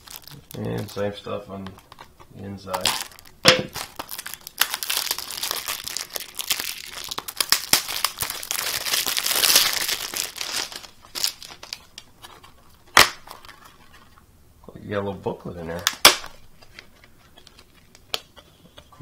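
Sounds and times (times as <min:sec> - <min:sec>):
plastic shrink-wrap crinkling: 0:00.0 - 0:14.2.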